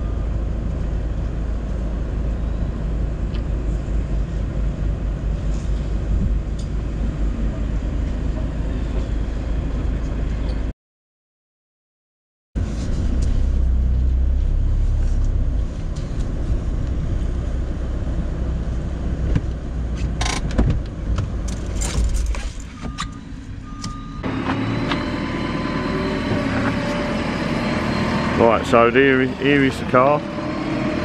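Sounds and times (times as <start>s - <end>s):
engine running outdoors: 0.0s - 10.7s, 12.6s - 31.0s
van engine and road rumble: 0.0s - 10.7s, 12.6s - 31.0s
rattles and clicks: 19.4s - 23.1s.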